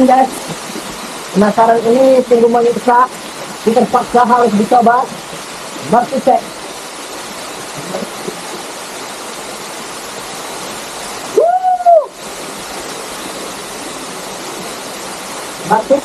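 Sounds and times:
waterfall rushing: 0.0s - 16.0s
loud rising and falling call: 11.3s - 12.2s.

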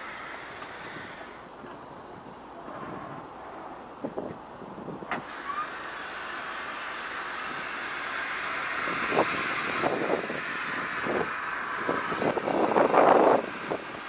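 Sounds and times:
steam locomotive hissing steam: 0.0s - 14.0s.

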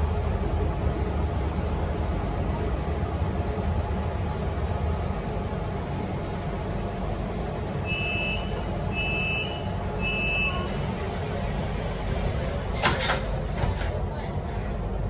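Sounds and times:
short high warning beeps: 7.9s - 10.7s
train doors shutting knocks: 12.7s - 14.0s.

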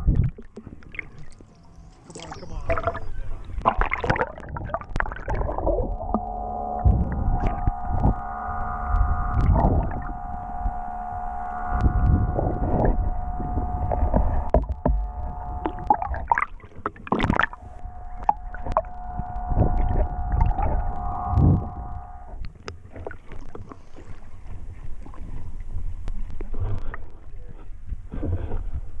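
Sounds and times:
steady whine: 0.0s - 22.9s
underwater water rushing: 0.0s - 27.1s.

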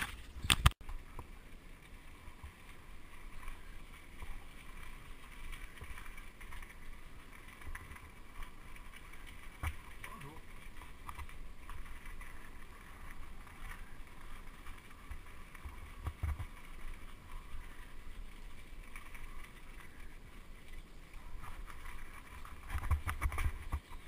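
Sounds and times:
bicycle rolling on rough lane: 0.0s - 24.0s
small rattles: 0.0s - 24.0s.

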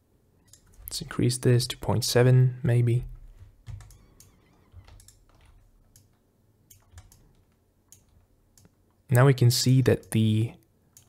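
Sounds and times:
computer keyboard and mouse clicks: 0.5s - 1.0s, 3.3s - 8.9s.

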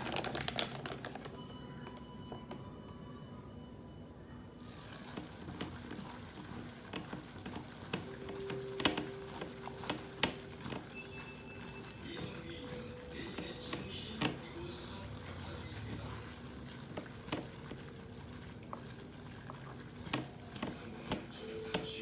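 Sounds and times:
hand squelching in wet batter: 4.6s - 22.0s.

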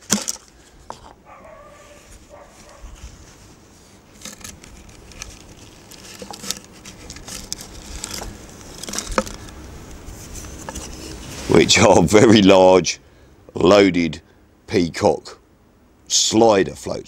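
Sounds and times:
rustling and scraping of tube: 0.0s - 11.8s.

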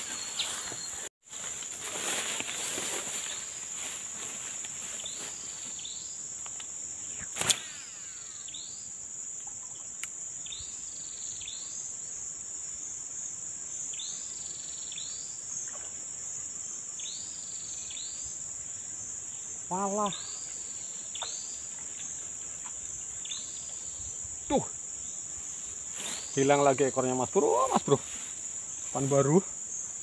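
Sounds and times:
insects buzzing high-pitched: 0.0s - 30.0s
sharp click: 6.4s - 8.0s.

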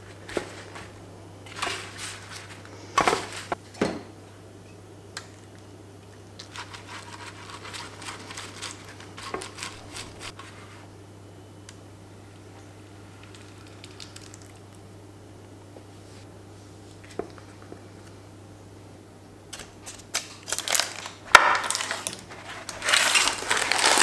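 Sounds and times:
parchment paper crinkling: 6.4s - 10.4s, 19.8s - 24.0s.

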